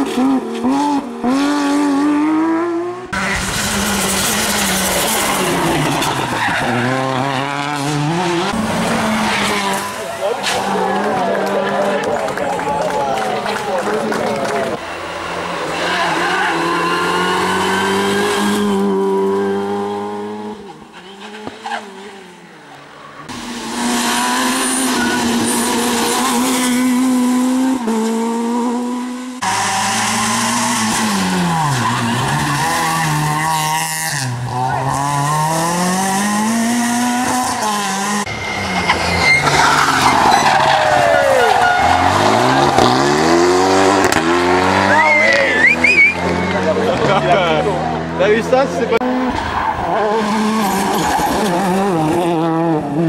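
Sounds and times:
rally car engines revving hard: 0.0 - 53.0
tyre squeal: 24.6 - 26.9, 38.3 - 43.0, 44.8 - 46.4.

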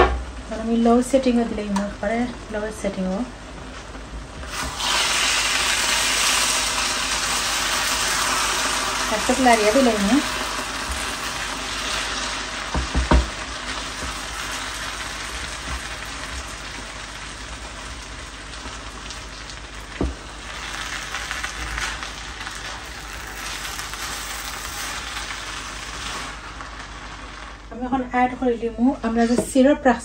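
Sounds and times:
food sizzling in a pot: 4.4 - 28.0.

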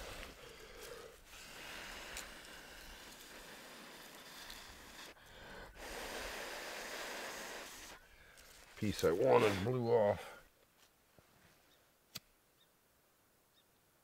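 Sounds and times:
person blowing on embers: 0.0 - 8.6
fire crackling: 0.0 - 9.7.

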